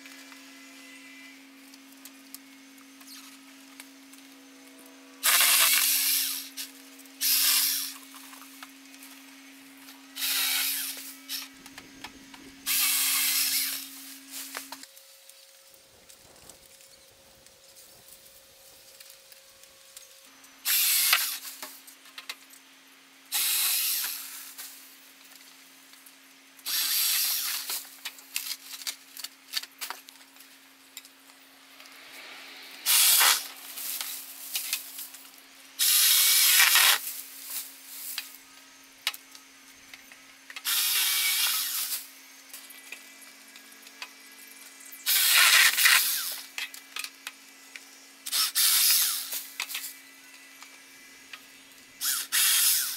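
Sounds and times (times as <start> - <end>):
pole saw cutting frond stems: 4.7 - 15.4, 17.8 - 21.9, 23.3 - 24.9, 26.6 - 30.0, 31.8 - 38.5, 40.5 - 44.1, 45.0 - 52.9.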